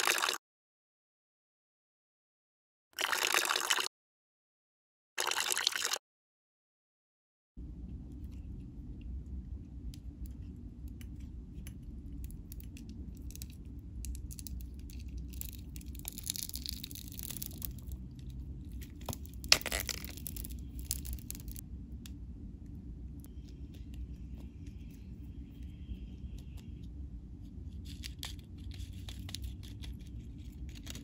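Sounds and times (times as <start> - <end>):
steady low hum: 7.6 - 31.0
fingernails crunching crust: 12.2 - 21.6.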